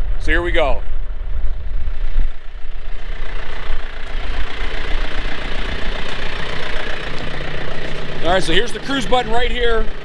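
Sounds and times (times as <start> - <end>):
tractor diesel engine idling: 2.2 - 10.0.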